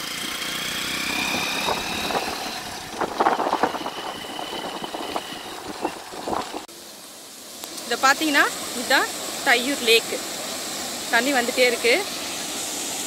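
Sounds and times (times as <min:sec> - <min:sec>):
vehicle engine and road noise: 0:00.0 - 0:06.8.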